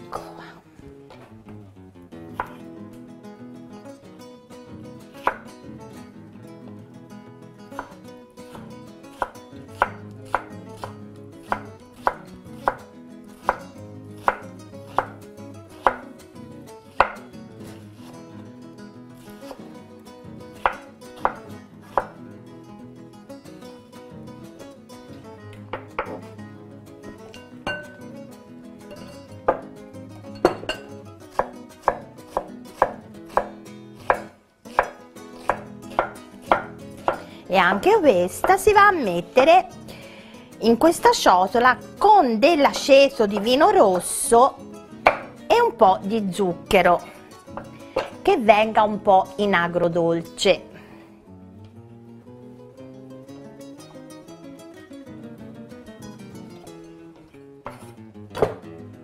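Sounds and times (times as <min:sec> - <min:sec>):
soft background music: 0:00.0 - 0:59.0
knife chopping on wooden board: 0:02.4 - 0:02.6, 0:05.2 - 0:05.4, 0:07.8 - 0:15.2, 0:15.8 - 0:16.1, 0:17.0 - 0:17.3, 0:20.6 - 0:22.2, 0:25.8 - 0:26.2, 0:29.5 - 0:29.7, 0:30.5 - 0:37.3, 0:45.1 - 0:45.4, 0:57.7 - 0:58.6
knife knocking on wooden board: 0:25.8 - 0:26.3, 0:45.1 - 0:45.3, 0:58.4 - 0:58.6.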